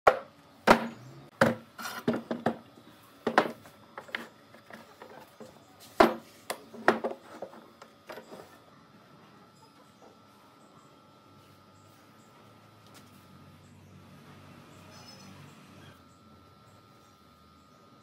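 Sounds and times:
wooden boards knocking on workbench: 0:00.1 - 0:02.6, 0:03.2 - 0:03.6, 0:06.0 - 0:06.2, 0:06.8 - 0:07.2.

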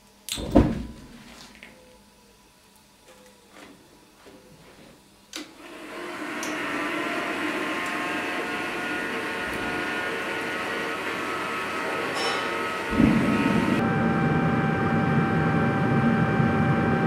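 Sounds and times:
gas burner rushing: 0:05.4 - 0:17.0.

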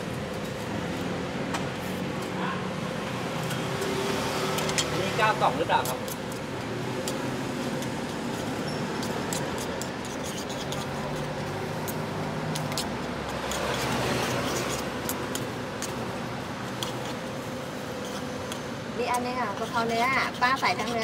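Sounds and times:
steady background hum: 0:04.6 - 0:21.0
fork clicking against bowl: 0:09.0 - 0:16.0.

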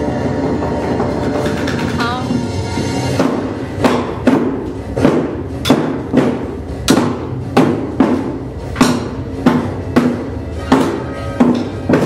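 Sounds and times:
barrel drum beats: 0:00.5 - 0:12.0.

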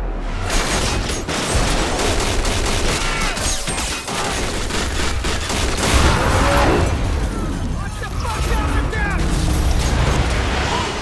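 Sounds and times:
rapid automatic gunfire: 0:00.5 - 0:06.6.

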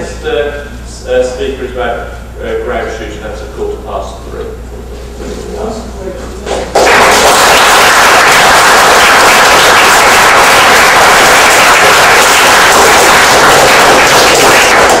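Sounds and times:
audience clapping: 0:06.6 - 0:15.0.

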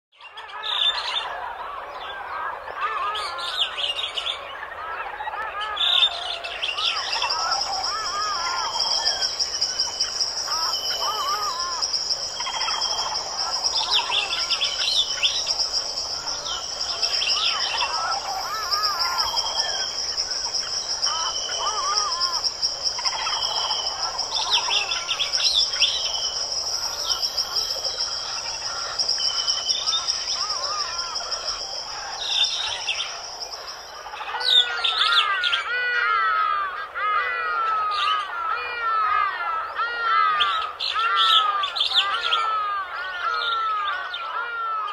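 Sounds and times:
small birds chirping: 0:00.2 - 0:44.9
high-pitched insect trill: 0:07.0 - 0:34.6.

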